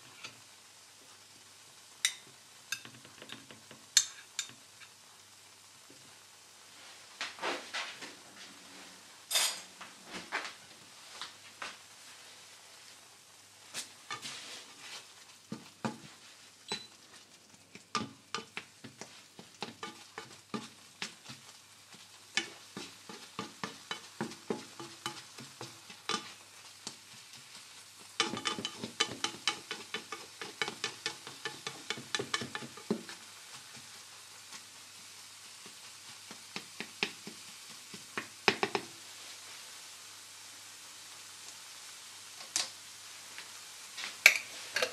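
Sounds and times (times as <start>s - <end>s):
eggs sizzling: 0.0s - 44.9s
spatula scraping frying pan: 14.0s - 34.6s, 44.3s - 44.9s.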